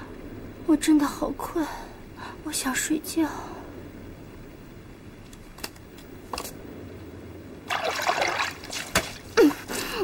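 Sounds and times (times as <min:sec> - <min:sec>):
water splashing: 0:07.7 - 0:09.3.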